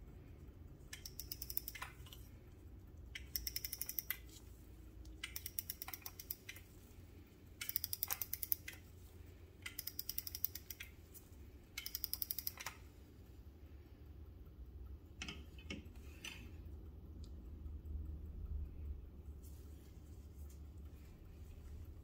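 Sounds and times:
winding ratchet clicking: 0.9 - 2.3, 3.1 - 4.4, 5.2 - 6.8, 7.6 - 8.9, 9.6 - 11.0, 11.7 - 12.8.

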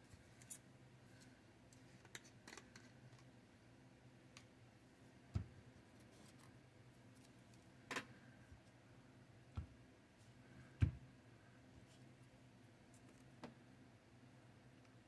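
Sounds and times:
faint room hum: 0.0 - 15.0.

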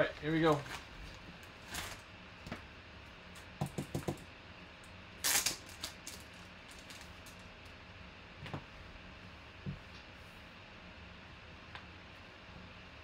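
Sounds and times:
paper and plastic rustling: 0.2 - 2.0.

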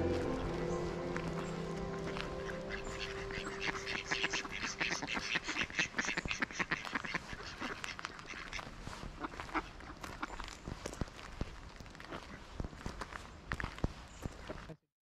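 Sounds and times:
ducks quacking: 0.0 - 10.6.

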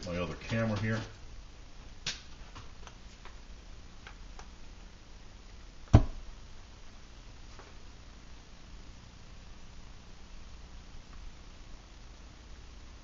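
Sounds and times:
low steady hum: 0.0 - 13.0
sharp knock: 5.9 - 6.2.

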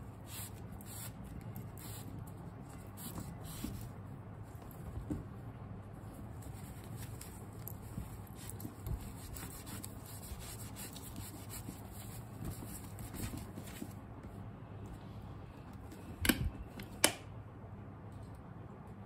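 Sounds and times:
wet wipe rubbing leather strap: 8.4 - 13.5.

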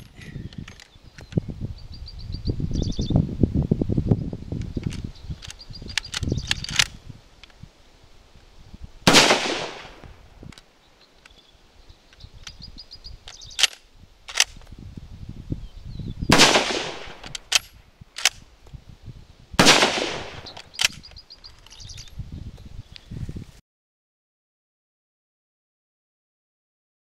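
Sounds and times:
rifle bolt clacking: 4.8 - 7.6, 13.3 - 14.7, 16.8 - 18.4, 19.7 - 22.0
rifle shots: 9.1 - 10.1, 16.3 - 18.4, 19.6 - 21.0.

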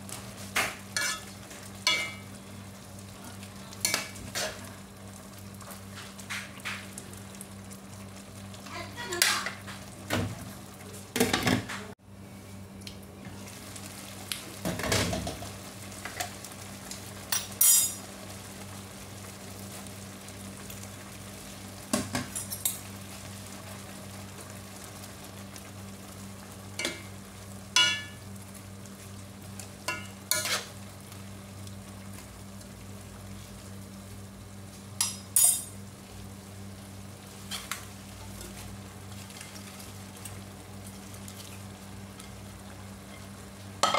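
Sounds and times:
soup bubbling in a pot: 12.9 - 43.9
metal ladle scraping a wok: 30.3 - 30.7.

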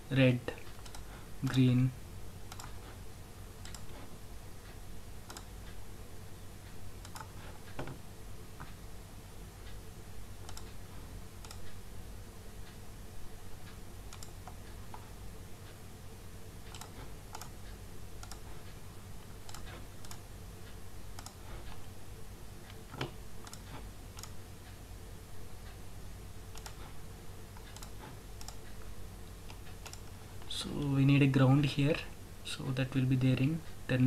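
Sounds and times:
low electrical hum: 0.0 - 34.0
computer mouse clicks: 0.6 - 1.6, 2.5 - 2.9, 3.6 - 4.1, 5.2 - 5.5, 7.0 - 8.0, 10.4 - 10.8, 11.4 - 11.8, 14.1 - 15.1, 16.7 - 18.5, 19.2 - 20.2, 21.1 - 21.8, 22.7 - 24.4, 26.5 - 30.5.

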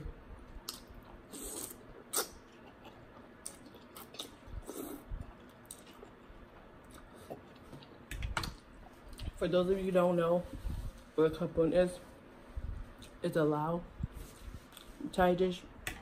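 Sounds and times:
slurping noodles: 1.3 - 2.3.

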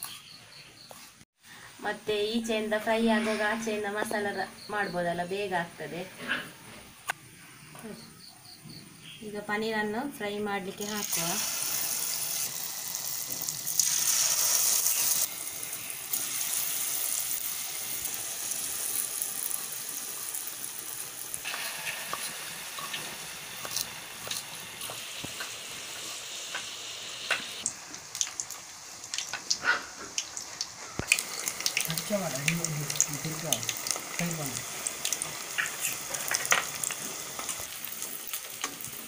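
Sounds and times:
food sizzling in hot oil: 9.6 - 39.0
oil clicks and pops: 27.3 - 34.2, 34.8 - 37.6.

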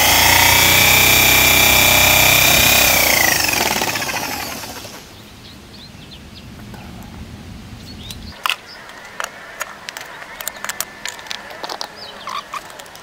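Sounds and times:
electric drill spinning down: 0.0 - 5.1.

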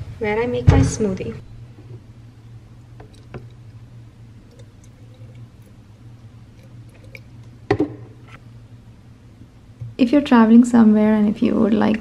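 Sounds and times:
milk pouring into plastic bottle: 4.4 - 7.8.

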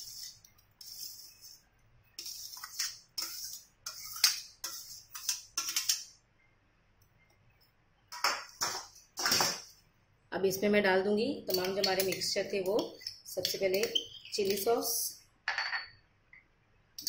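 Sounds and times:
metal strainer scraping a bowl: 0.0 - 1.6, 2.2 - 5.9.

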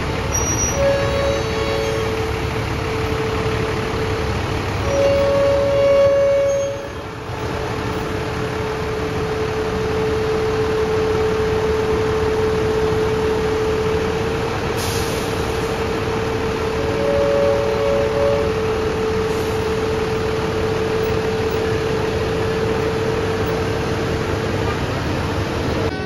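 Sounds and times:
bus engine idling: 0.0 - 26.0
bus air horn: 0.3 - 3.7, 4.8 - 7.4, 16.7 - 19.9.

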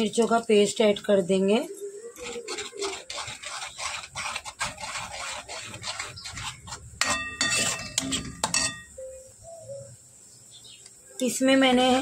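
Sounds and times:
metal spoon stirring in pot: 0.0 - 9.1
spoon knocking on pot: 7.0 - 8.9.

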